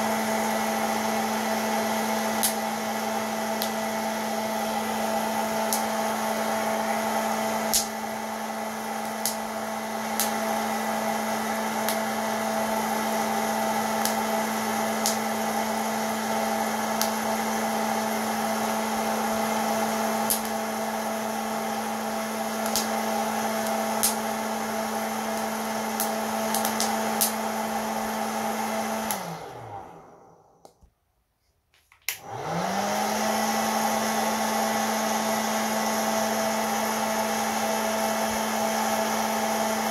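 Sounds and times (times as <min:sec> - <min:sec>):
popcorn maker fan motor: 0:00.0 - 0:30.8, 0:32.1 - 0:39.9.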